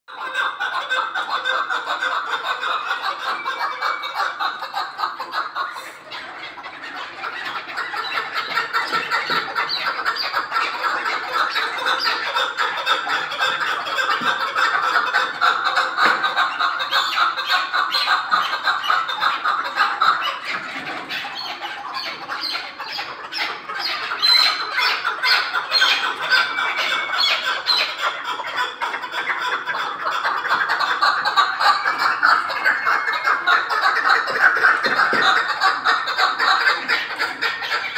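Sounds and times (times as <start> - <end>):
partridges calling: 1.4 - 28.2.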